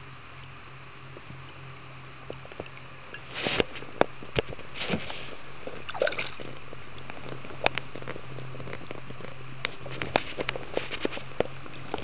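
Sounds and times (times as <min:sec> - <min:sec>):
fish splashing in water: 0:02.2 - 0:07.4.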